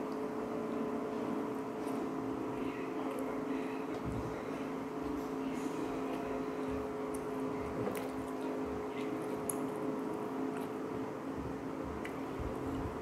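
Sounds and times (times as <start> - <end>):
steady low hum: 0.0 - 13.0
wet chewing sounds: 6.0 - 10.9.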